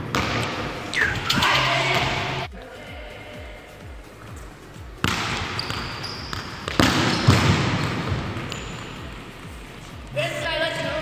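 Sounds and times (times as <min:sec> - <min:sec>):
football being kicked: 0:05.0 - 0:08.6.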